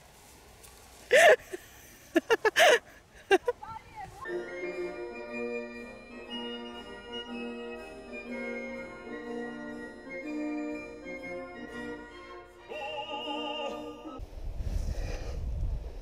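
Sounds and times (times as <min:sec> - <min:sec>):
organ-like chords: 0:04.3 - 0:14.2
operatic singing voice: 0:12.6 - 0:14.2.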